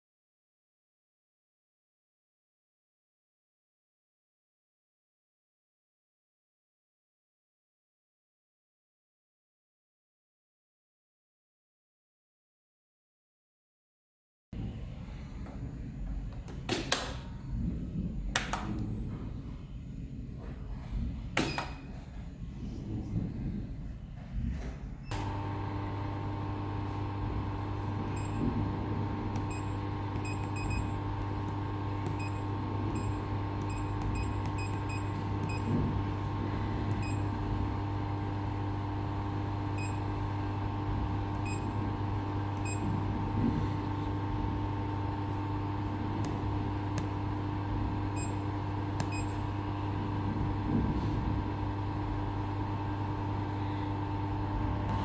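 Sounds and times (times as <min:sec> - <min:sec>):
laser cleaning machine humming: 0:25.1 - 0:55.0.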